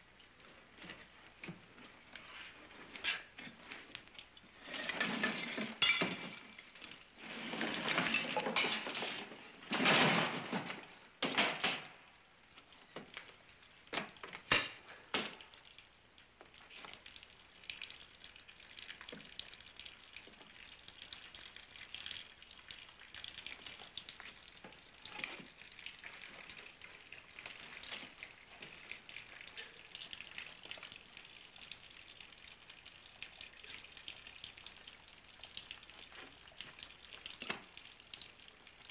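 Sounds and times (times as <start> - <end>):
faint crackling hiss: 0.0 - 38.9
crashing rumbling debris: 7.4 - 11.0.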